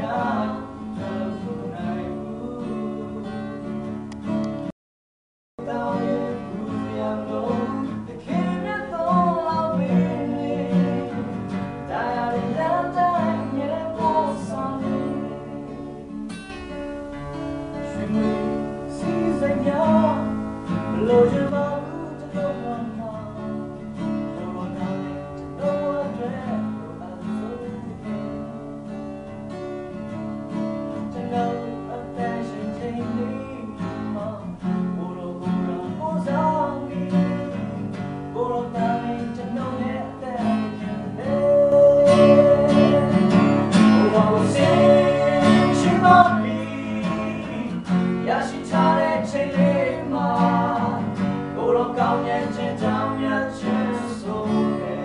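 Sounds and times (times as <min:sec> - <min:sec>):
men singing: 0:00.0 - 0:03.5, 0:05.6 - 0:15.4, 0:17.7 - 0:25.0, 0:31.0 - 0:37.6, 0:38.4 - 0:55.0
acoustic guitar: 0:00.0 - 0:04.8, 0:05.6 - 0:55.0.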